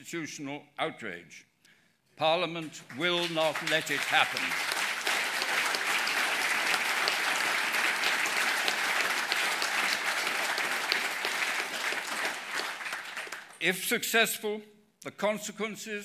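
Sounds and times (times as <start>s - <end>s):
audience clapping: 2.7s - 13.8s.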